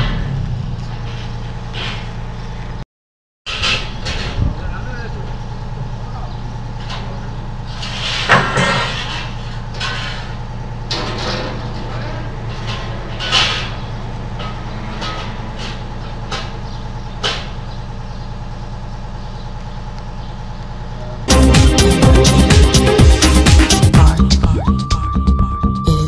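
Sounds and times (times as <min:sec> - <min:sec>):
machinery engine running: 0:03.7 - 0:25.0
metallic clanks and knocks: 0:06.7 - 0:17.8.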